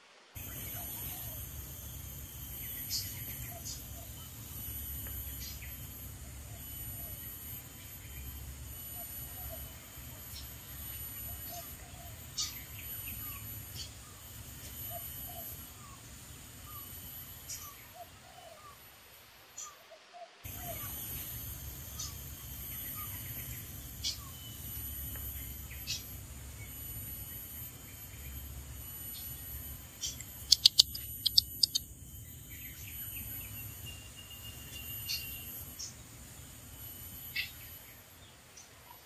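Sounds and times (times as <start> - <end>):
steady low hum: 0.4 - 18.9, 20.4 - 39.0
bird call notes: 30.0 - 31.8.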